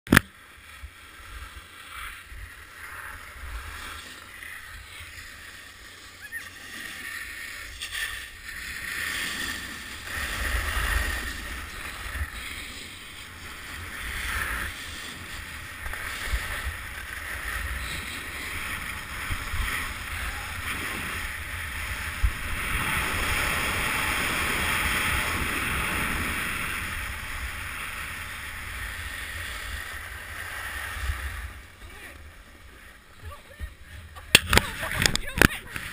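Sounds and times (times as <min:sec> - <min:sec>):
snowboard scraping over snow: 0:00.3 - 0:35.9
wind rumbling on microphone: 0:00.6 - 0:35.9.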